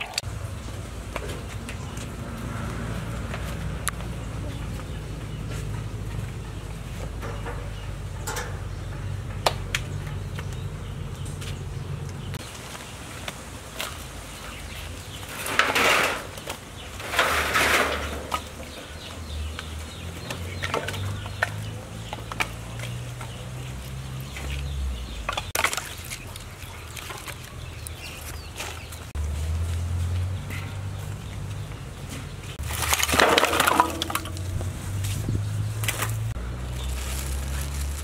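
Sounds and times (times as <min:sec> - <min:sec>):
loud rustling bursts: 0:32.6 - 0:38.0
firewood knocking: 0:32.7 - 0:34.8.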